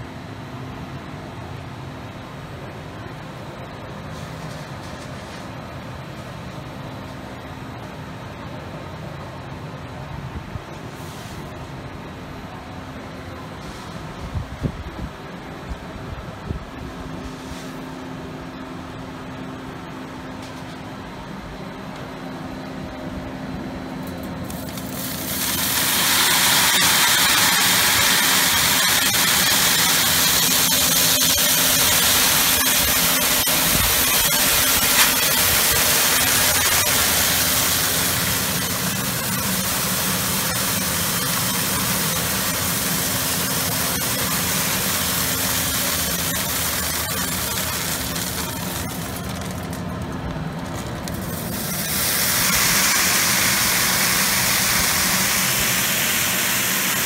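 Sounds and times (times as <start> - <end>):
seed pouring hiss: 4.1 - 5.6, 24.0 - 57.0
motor humming: 24.1 - 57.0.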